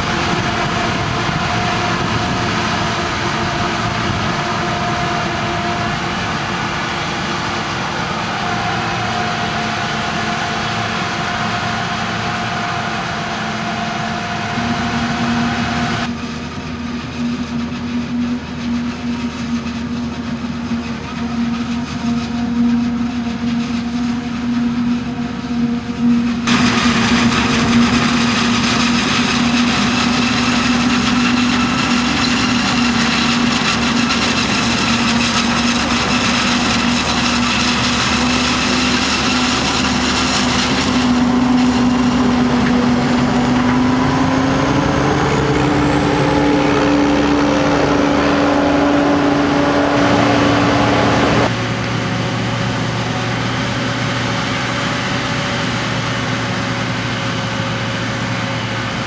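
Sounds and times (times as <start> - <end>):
harvester and tractor engine drone: 0.0 - 59.0.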